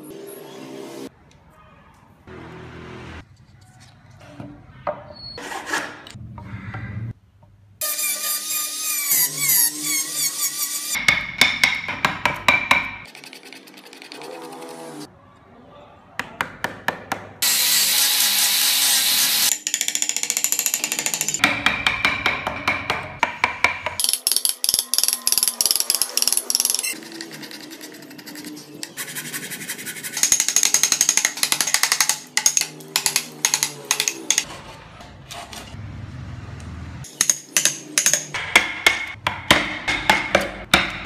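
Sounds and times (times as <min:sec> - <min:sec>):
angle grinder on wood: 0:17.4 - 0:19.5.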